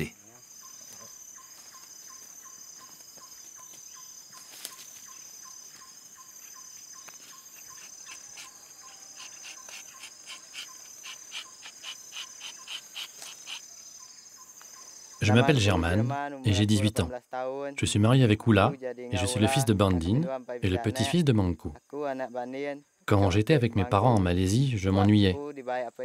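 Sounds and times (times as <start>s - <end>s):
insects shrilling: 0.0s - 15.4s.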